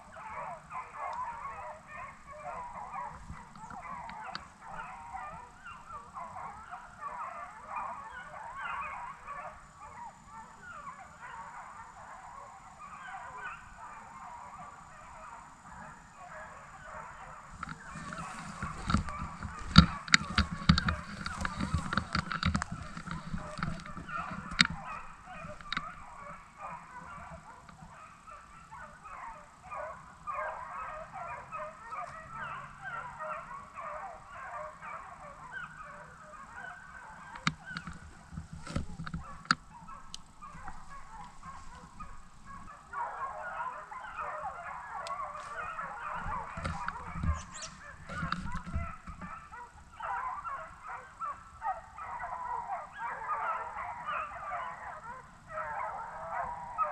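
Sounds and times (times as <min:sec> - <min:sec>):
hounds baying: 0:00.0 - 0:56.9
sharp clicks: 0:17.6 - 0:26.0.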